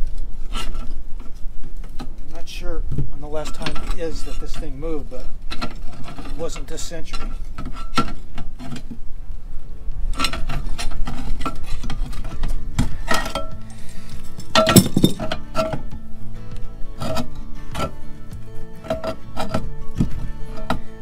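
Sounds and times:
background music: 0:12.2 - 0:21.0
metal clinks of hand tools: 0:13.1 - 0:15.8.

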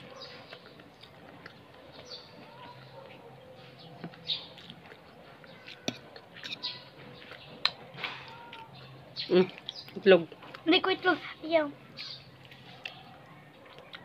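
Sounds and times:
chewing with mouth clicks: 0:00.0 - 0:08.7, 0:09.4 - 0:10.6, 0:12.4 - 0:14.0
bird chirps: 0:03.6 - 0:04.7, 0:12.0 - 0:12.3.

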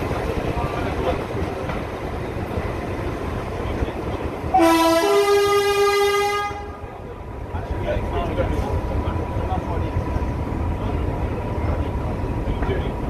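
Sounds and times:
train rumbling on tracks: 0:00.0 - 0:13.0
two-tone locomotive horn: 0:04.5 - 0:06.9.

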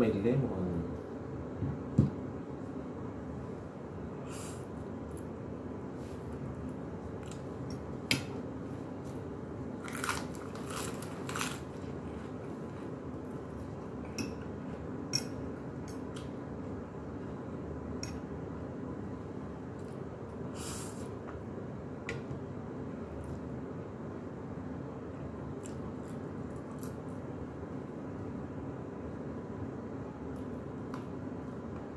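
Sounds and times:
low background hum: 0:00.0 - 0:31.9
person chewing crunchy food: 0:09.8 - 0:13.0.

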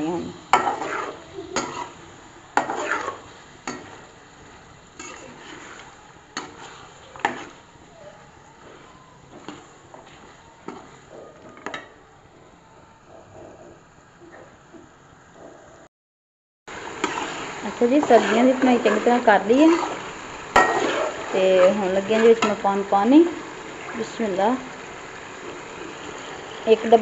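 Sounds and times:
metal spoon scraping cooking pot: 0:02.6 - 0:03.2, 0:05.0 - 0:07.6.

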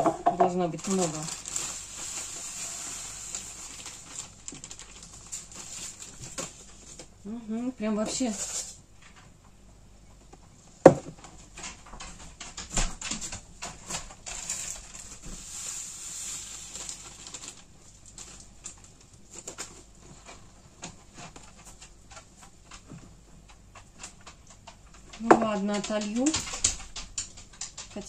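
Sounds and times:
plastic containers knocking: 0:00.0 - 0:00.9, 0:10.8 - 0:11.3, 0:25.1 - 0:28.0
salt packet rustling: 0:00.7 - 0:07.1, 0:13.7 - 0:19.9.

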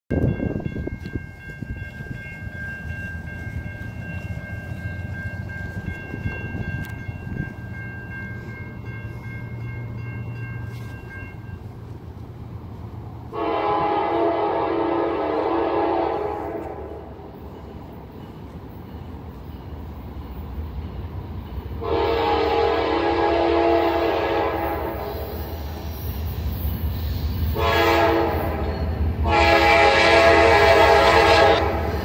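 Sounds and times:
diesel locomotives rumbling: 0:00.1 - 0:32.0
locomotive air horn: 0:13.3 - 0:17.1, 0:21.8 - 0:25.4, 0:27.5 - 0:32.0.

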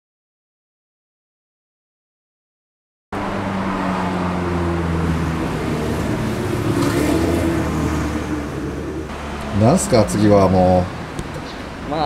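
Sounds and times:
street traffic noise: 0:03.2 - 0:12.0
vehicle engine humming: 0:03.2 - 0:12.0.

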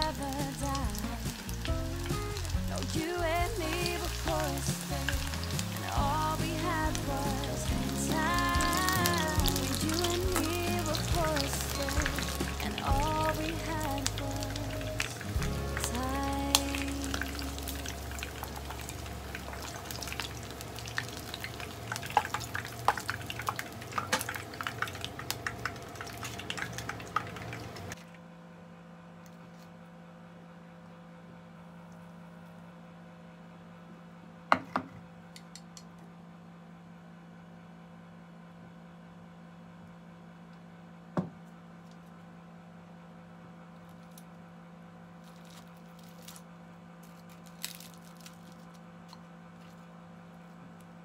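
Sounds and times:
fritters sizzling in hot oil: 0:00.0 - 0:28.0
low steady hum: 0:00.0 - 0:51.0.

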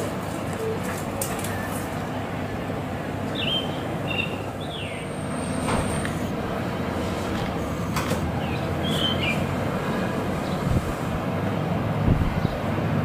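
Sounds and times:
birds chirping: 0:01.5 - 0:06.9, 0:07.5 - 0:11.1
distant jet rumbling roar: 0:01.8 - 0:13.0.

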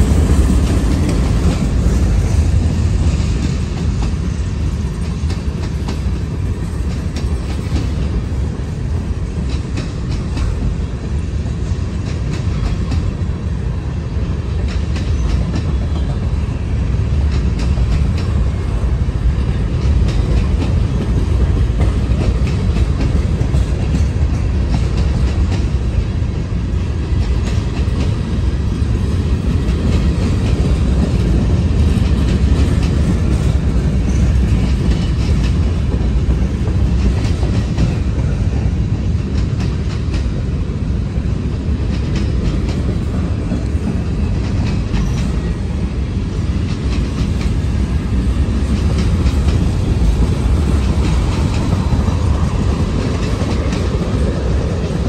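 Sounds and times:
wheels clacking over rail joints: 0:00.0 - 0:10.8, 0:11.5 - 0:40.6, 0:41.5 - 0:55.0
freight train wheels rumbling: 0:00.0 - 0:55.0.

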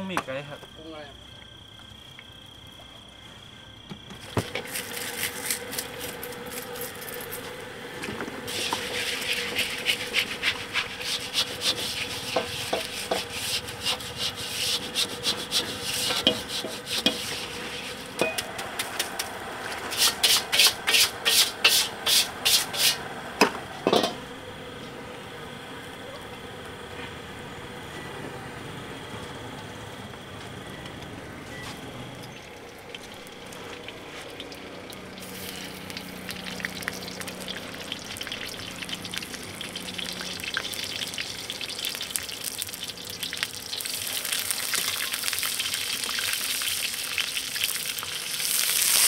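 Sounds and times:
metal spatula scraping a pan: 0:08.5 - 0:18.2, 0:19.9 - 0:23.0.

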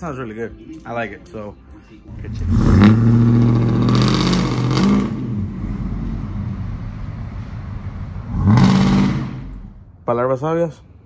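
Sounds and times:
pickup truck exhaust accelerating: 0:02.1 - 0:10.0.

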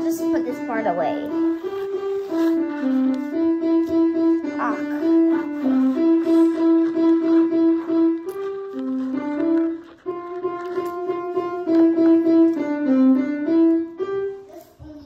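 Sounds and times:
piano melody: 0:00.0 - 0:15.0.

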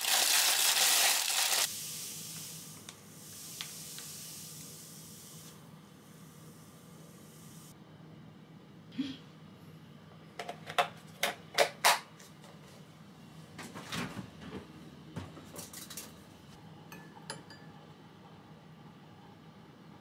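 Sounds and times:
spoon clinking against glass bowl: 0:16.9 - 0:17.7.

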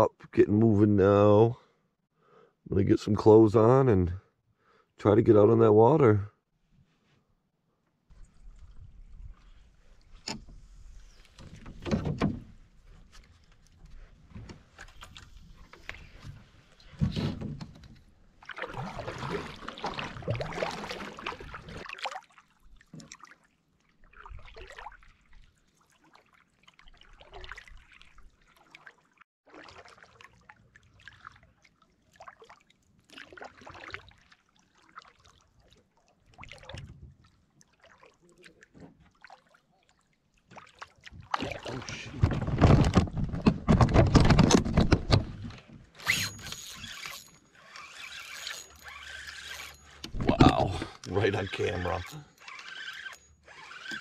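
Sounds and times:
paddle strokes swishing through water: 0:12.5 - 0:42.5.

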